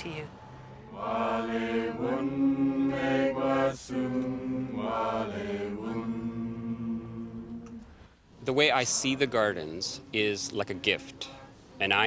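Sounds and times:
group singing slow chant: 0.6 - 8.0, 8.8 - 10.1.

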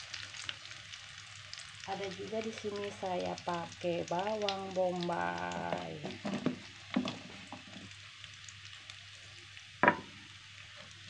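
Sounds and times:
oil sizzling in pan: 0.0 - 11.0
kitchen utensils knocking: 9.8 - 10.1.

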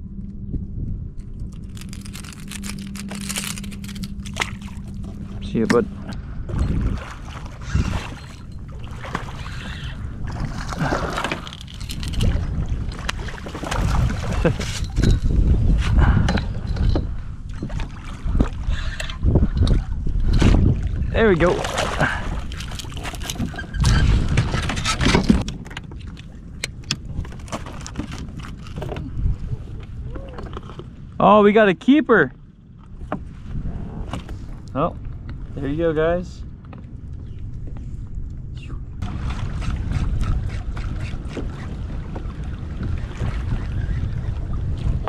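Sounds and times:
wind rumbling on microphone: 0.0 - 45.0
water splashing and lapping: 1.2 - 31.2, 39.0 - 45.0.

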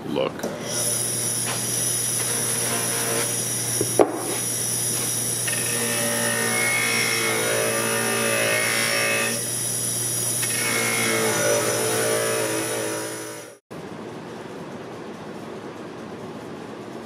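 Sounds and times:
bench grinder motor hum: 0.6 - 13.6.

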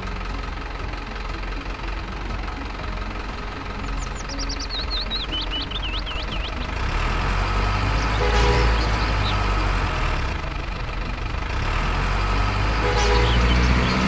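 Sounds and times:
toy truck motor humming: 5.3 - 14.0.

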